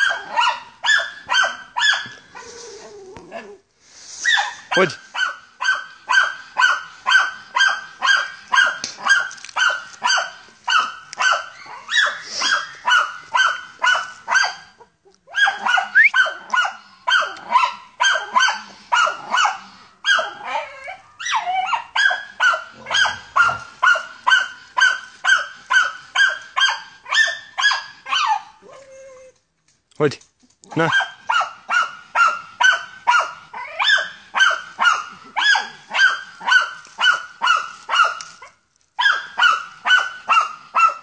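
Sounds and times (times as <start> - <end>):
dog barking sharply: 4.3 - 14.6, 22.0 - 27.8, 30.7 - 38.3.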